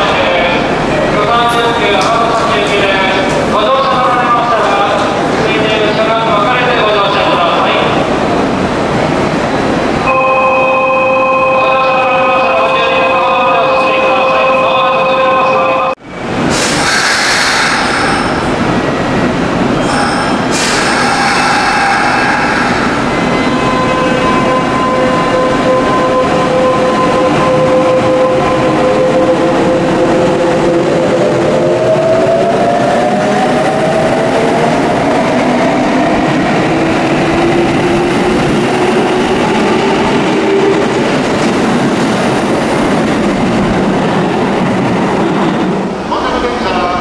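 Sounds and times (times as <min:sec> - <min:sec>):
train wheels rumbling: 0:16.2 - 0:47.0.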